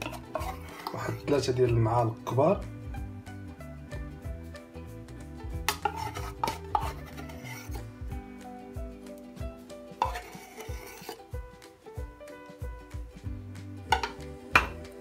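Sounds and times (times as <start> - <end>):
metal spoon scraping and knocking: 0.0 - 1.3, 5.6 - 7.9, 9.9 - 11.3, 13.9 - 14.8
background music: 0.0 - 15.0.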